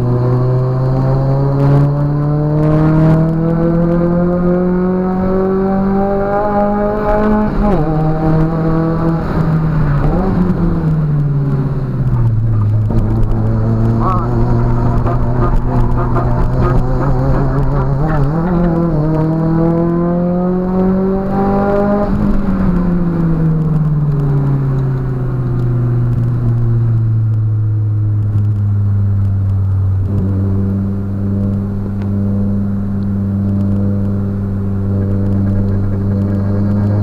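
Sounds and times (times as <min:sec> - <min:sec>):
car engine revving: 0:00.0 - 0:37.0.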